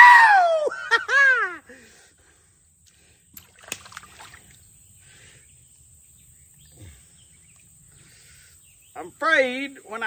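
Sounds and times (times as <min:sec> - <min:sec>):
splashes in shallow water: 0:03.4 - 0:04.6.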